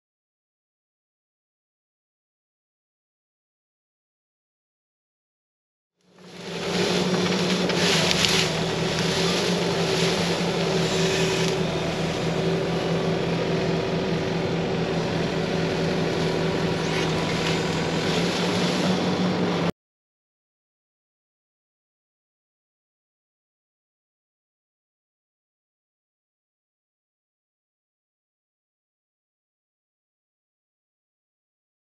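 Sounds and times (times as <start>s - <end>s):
diesel engine running: 6.1s - 19.7s.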